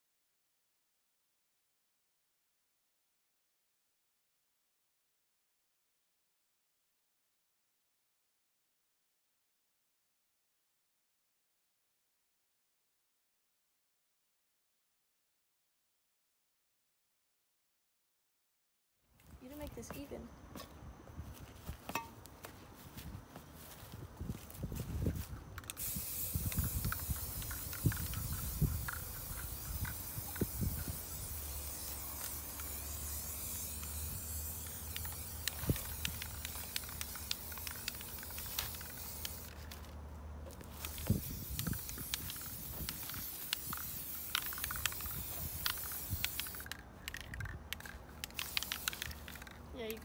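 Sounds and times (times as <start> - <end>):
soft footsteps: 19.2 - 25.8
spray paint can hissing: 23.6 - 50.0.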